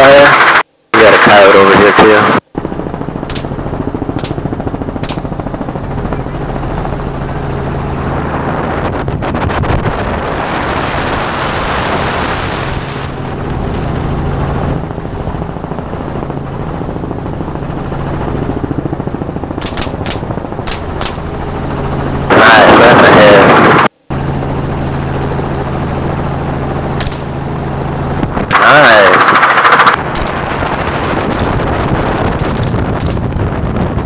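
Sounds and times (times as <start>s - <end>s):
helicopter rotor and engine drone: 0.0s - 34.0s
wind rush: 2.3s - 23.9s, 27.3s - 34.0s
rifle shots: 3.2s - 5.4s, 19.6s - 21.3s, 27.0s - 27.3s, 28.6s - 33.3s.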